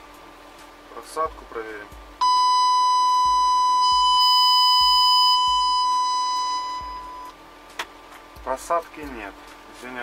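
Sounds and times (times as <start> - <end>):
distorted high-pitched test tone: 2.2 - 7.3.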